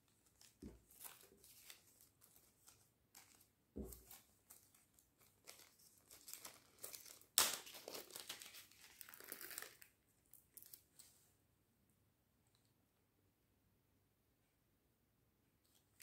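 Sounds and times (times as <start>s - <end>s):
plastic packet ripping: 4.0s - 9.9s
plastic packet crinkling: 4.0s - 10.9s.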